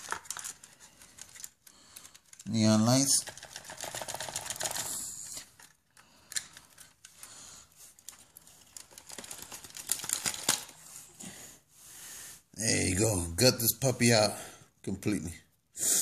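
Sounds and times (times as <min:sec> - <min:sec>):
plastic clicking and rustling: 0:00.0 - 0:07.3, 0:07.9 - 0:10.8.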